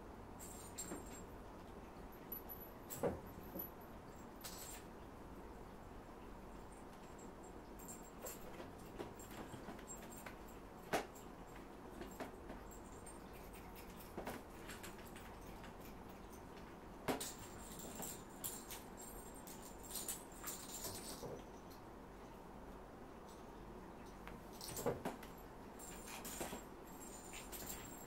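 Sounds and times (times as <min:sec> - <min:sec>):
cats playing taps and knocks: 0:06.9 - 0:21.8, 0:24.0 - 0:28.0.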